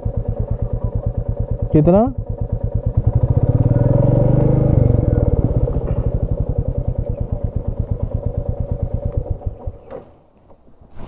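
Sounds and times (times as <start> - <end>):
motorcycle engine idling: 0.0 - 10.4.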